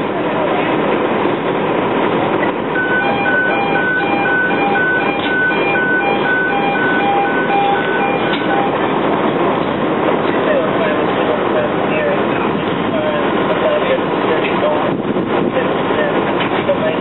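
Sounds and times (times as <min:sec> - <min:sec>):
engines running: 0:00.0 - 0:17.0
fire rumbling: 0:00.0 - 0:17.0
electronic alarm beeping: 0:02.8 - 0:09.0.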